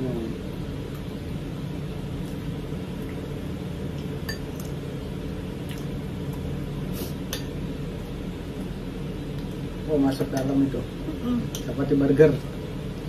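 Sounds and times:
low background hum: 0:00.0 - 0:13.0.

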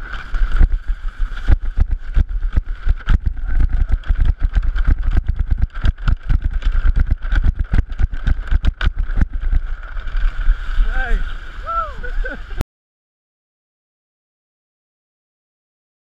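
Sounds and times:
wind buffeting microphone: 0:00.0 - 0:12.6.

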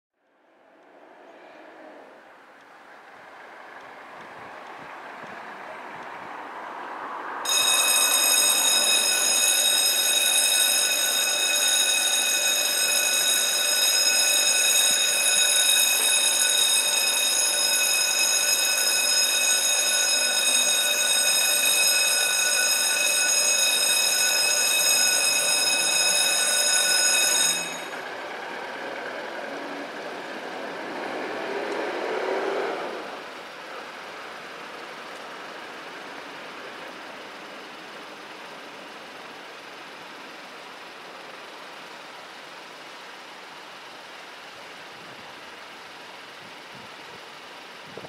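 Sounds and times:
background noise: 0:00.2 - 0:48.0
level crossing warning bell: 0:07.4 - 0:28.2.

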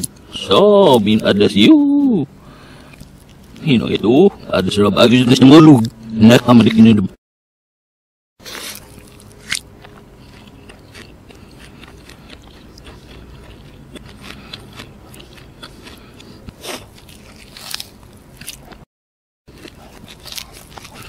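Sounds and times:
food being bitten and chewed: 0:02.7 - 0:04.5, 0:08.4 - 0:18.9, 0:19.5 - 0:21.0.

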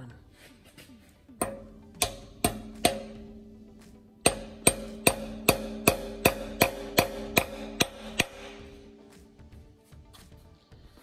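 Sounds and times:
hammer tapping metal dowel: 0:01.4 - 0:08.8
metal ringing: 0:01.4 - 0:09.1.

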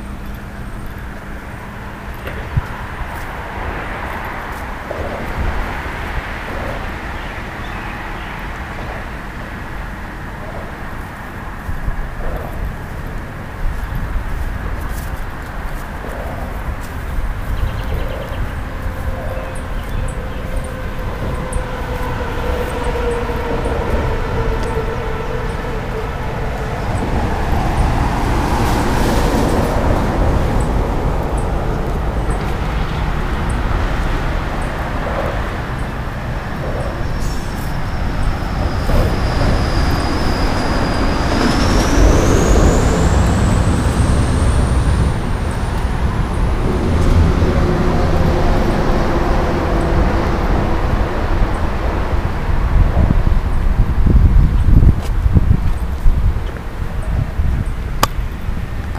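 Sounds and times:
thin high whine: 0:00.0 - 0:46.4
highway traffic roar: 0:00.0 - 0:58.9.

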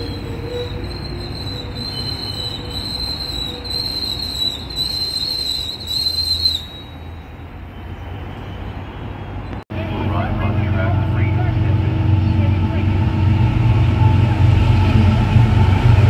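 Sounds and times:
train wheels squealing: 0:00.0 - 0:09.5
train rumbling past: 0:00.0 - 0:16.0.

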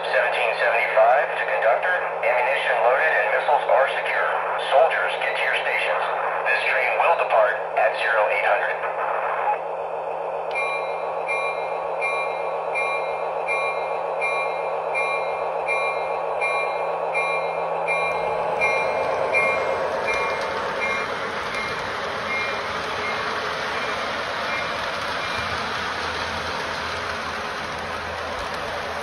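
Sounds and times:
diesel engine rumble: 0:08.9 - 0:29.0
wheels rumbling on track: 0:10.5 - 0:29.0.

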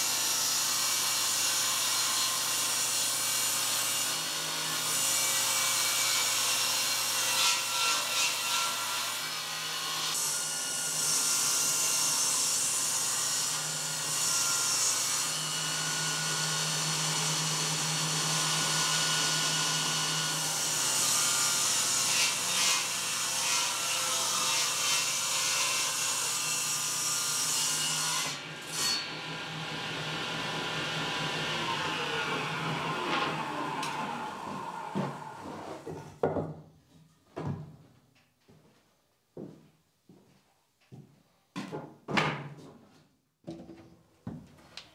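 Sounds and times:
table saw cutting wood: 0:00.0 - 0:36.1
saw blade spinning down: 0:28.4 - 0:35.8.

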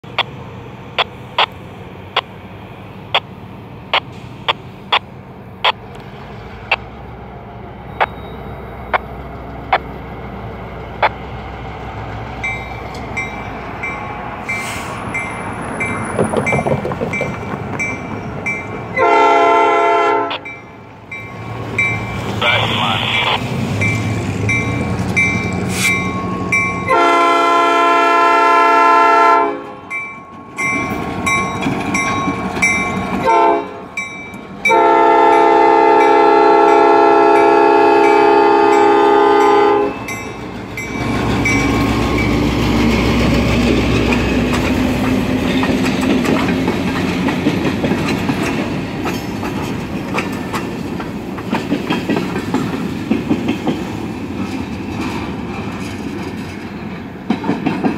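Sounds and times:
diesel locomotive engine: 0:00.0 - 0:57.9
train wheels clacking over rail joints: 0:15.0 - 0:18.8, 0:30.6 - 0:33.3, 0:40.1 - 0:57.9
locomotive air horn blasts: 0:19.0 - 0:20.4, 0:26.9 - 0:29.9, 0:33.2 - 0:34.0, 0:34.7 - 0:40.0.

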